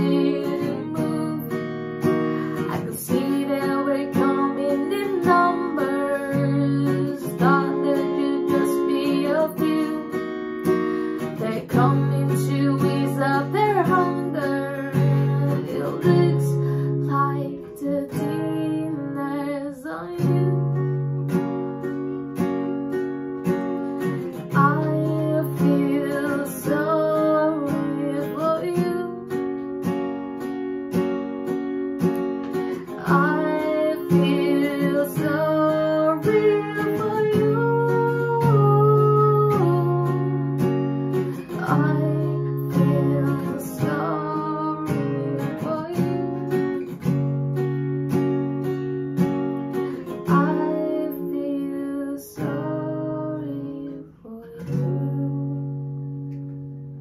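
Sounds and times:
acoustic guitar strumming: 0.0 - 19.5, 20.1 - 57.0
woman singing: 0.0 - 21.1, 24.0 - 29.6, 32.5 - 47.4, 49.7 - 56.1.

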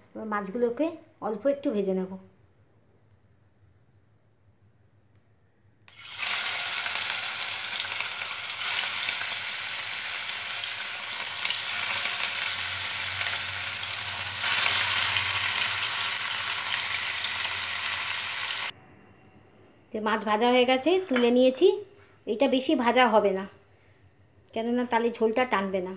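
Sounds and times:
fish sizzling in hot oil: 5.9 - 18.7.

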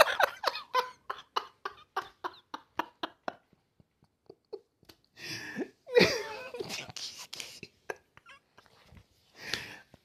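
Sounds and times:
man laughing: 5.6 - 6.8.

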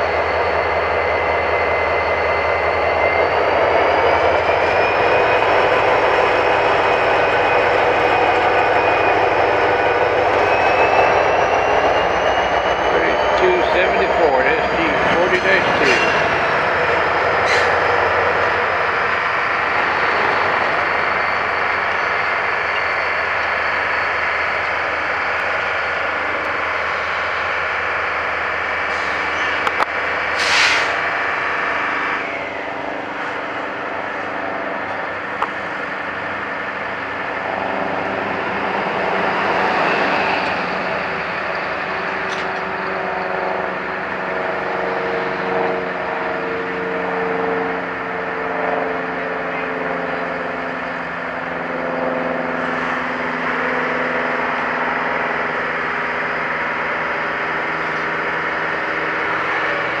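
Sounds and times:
heavy diesel engines revving: 0.0 - 60.0.

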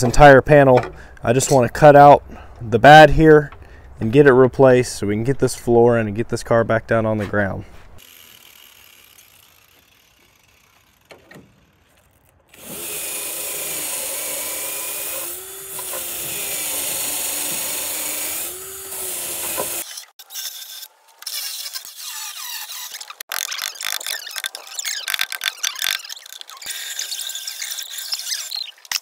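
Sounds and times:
wire brush wheel grinding rust: 8.0 - 29.0.

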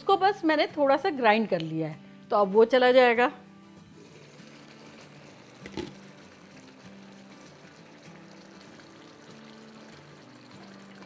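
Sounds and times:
soft background music: 0.0 - 11.0
sauce bubbling in a wok: 4.0 - 11.0.

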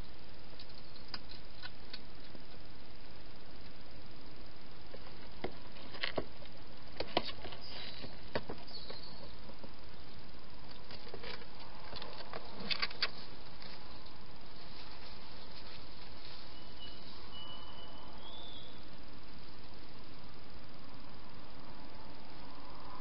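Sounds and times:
steady hiss: 0.0 - 23.0
hedgehog clicks and scrapes: 0.6 - 2.6, 10.7 - 14.2.

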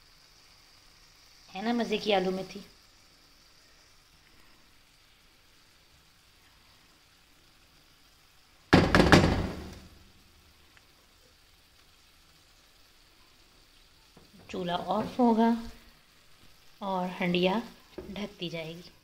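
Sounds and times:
knocks on frying pan: 8.7 - 9.8.

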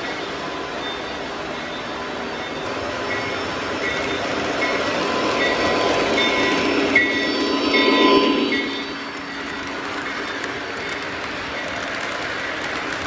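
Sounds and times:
model train rolling rumble: 3.1 - 13.0.

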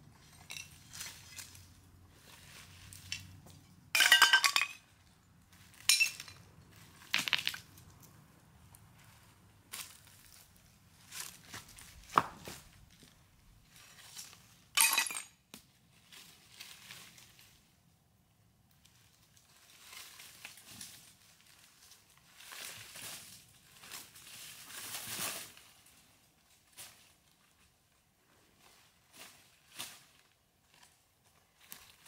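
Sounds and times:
dry leaves crunching and rustling: 0.2 - 3.4, 9.0 - 12.8, 19.0 - 27.6.

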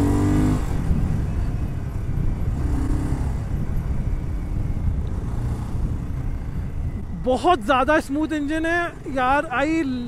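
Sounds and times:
motorcycle engine revving: 0.0 - 7.2.

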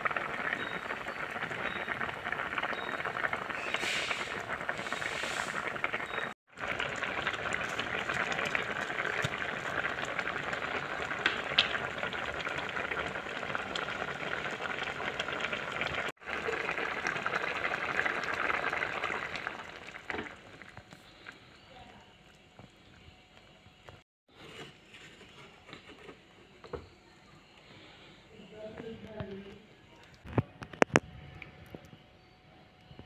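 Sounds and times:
curry boiling and bubbling: 0.0 - 26.0.

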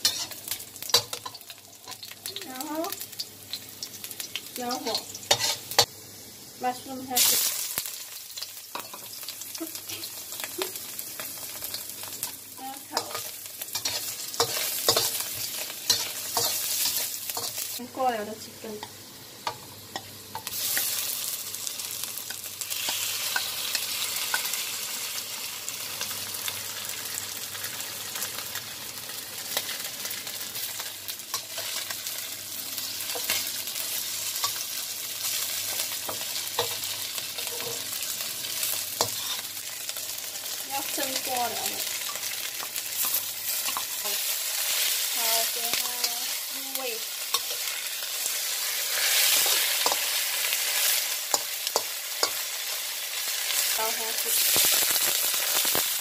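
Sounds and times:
metal spatula scraping a pan: 0.0 - 2.0, 4.8 - 5.9, 12.9 - 17.6, 39.0 - 39.5
food sizzling in hot oil: 0.0 - 56.0.

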